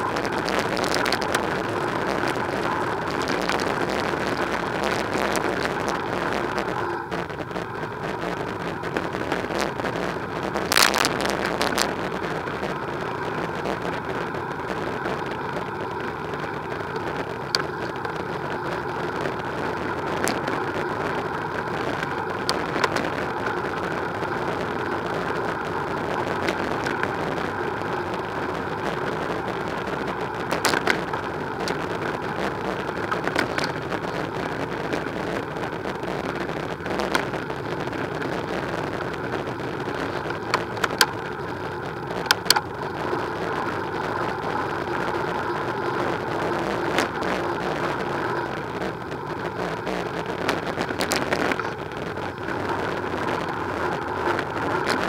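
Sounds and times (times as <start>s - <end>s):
tyres rumbling on tarmac: 0.0s - 55.0s
wind: 0.0s - 55.0s.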